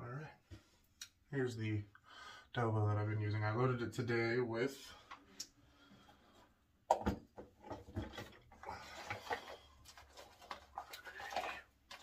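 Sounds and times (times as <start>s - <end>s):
small clicks and rustles of handling: 7.6s - 12.0s.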